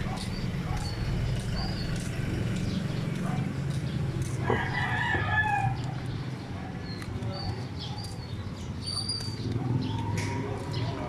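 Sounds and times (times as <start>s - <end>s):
low street hum: 0.0s - 11.0s
rooster crowing: 4.4s - 5.8s.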